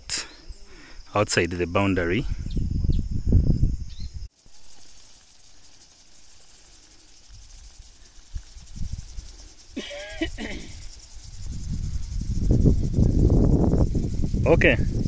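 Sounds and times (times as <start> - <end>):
wind rumbling on microphone: 1.7 - 4.3, 7.2 - 15.0
faint high hiss: 3.8 - 14.8.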